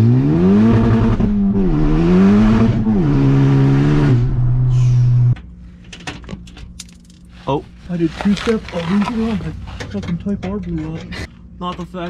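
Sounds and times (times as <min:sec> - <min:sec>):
car engine accelerating hard: 0:00.0 - 0:05.4.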